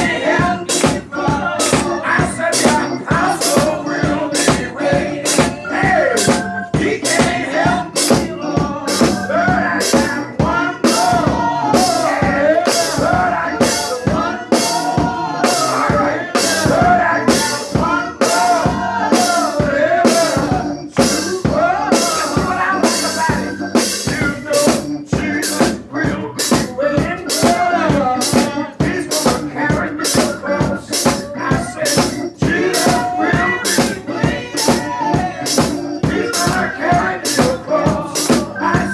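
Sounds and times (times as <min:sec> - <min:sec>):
drums beat: 0:00.0 - 0:38.9
man singing gospel: 0:00.0 - 0:38.9.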